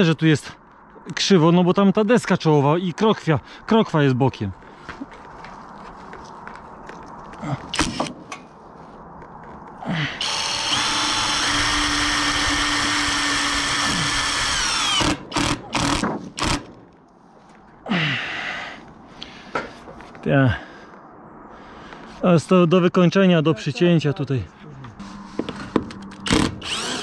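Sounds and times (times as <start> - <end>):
impact driver whining: 10.2 - 16.7, 26.1 - 27.0.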